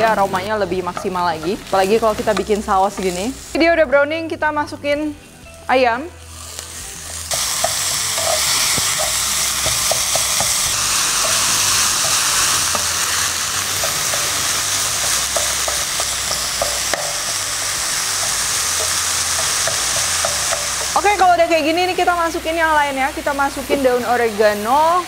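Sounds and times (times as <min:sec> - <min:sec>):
chicken sizzling in pan: 0:06.2 - 0:25.0
spatula tapping and scraping pan: 0:07.6 - 0:13.0, 0:13.8 - 0:21.0.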